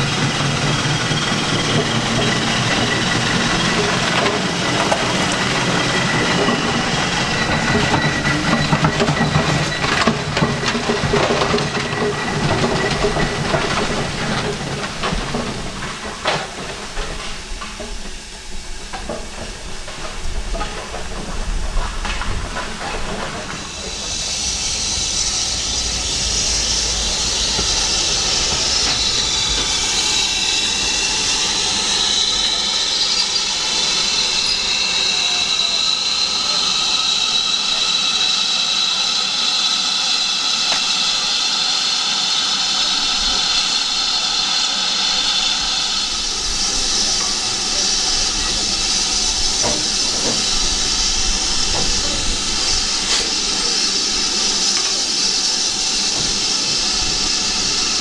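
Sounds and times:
steam hissing: 0.0 - 58.0
steam train knocking and clattering: 0.0 - 58.0.

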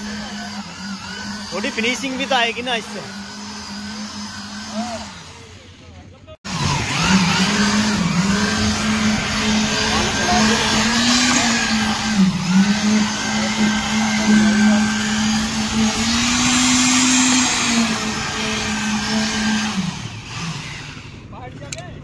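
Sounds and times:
concrete vibrator humming and whining: 0.0 - 21.4.

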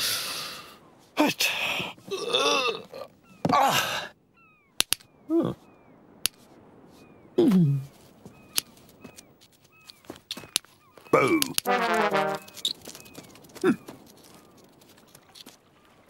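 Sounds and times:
sharp clicks: 4.8 - 5.1.

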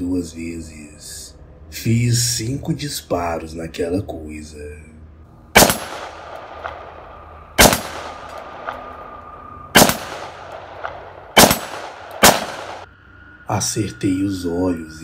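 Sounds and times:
pistol shots echoing: 5.6 - 9.0, 9.8 - 12.9.

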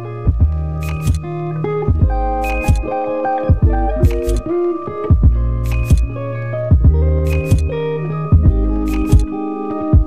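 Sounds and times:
keyboard chords: 0.0 - 10.0
kick drum thuds: 0.3 - 0.6, 1.9 - 2.9, 3.5 - 4.3, 5.1 - 6.1, 6.7 - 7.7, 8.3 - 9.2.

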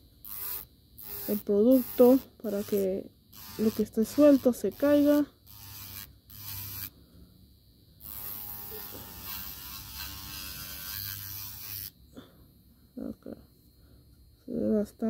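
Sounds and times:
electric nail file grinding: 0.2 - 7.0, 8.0 - 12.0.

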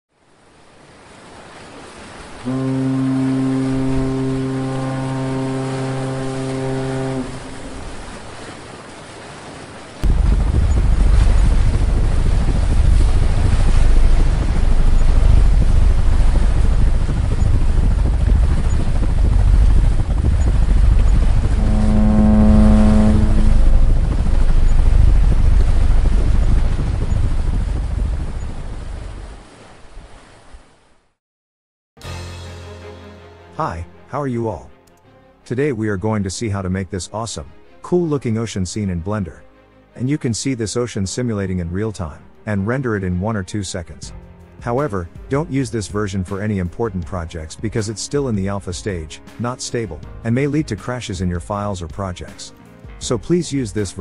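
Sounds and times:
low rumble of wind and sea: 0.1 - 31.2, 35.4 - 54.0
sea waves washing: 0.4 - 30.8
ship's horn blast: 2.4 - 8.5, 13.5 - 25.8.

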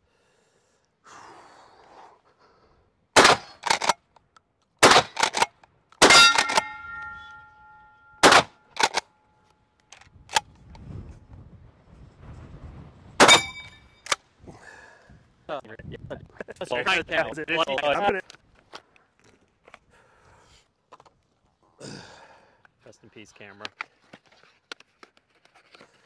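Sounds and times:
shotgun shots: 3.2 - 3.9, 4.8 - 7.1, 8.2 - 9.0, 13.2 - 13.8
shotgun pump clack: 3.2 - 4.0, 4.8 - 7.4, 8.2 - 9.0
ringing tone: 6.1 - 8.2, 13.3 - 14.0.

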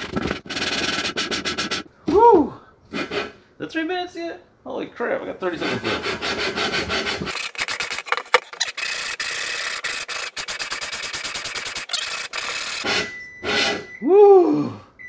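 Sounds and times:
gritty metal-on-metal rasping: 5.4 - 13.8.

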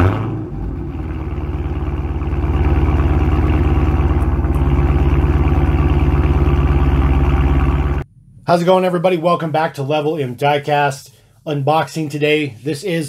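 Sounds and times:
car engine idling exhaust: 0.0 - 8.5.

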